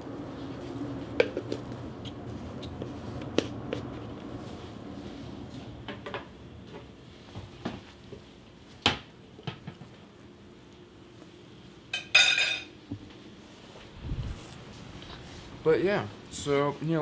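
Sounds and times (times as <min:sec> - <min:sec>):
metal spoon clinking on dishes: 0:11.9 - 0:12.7.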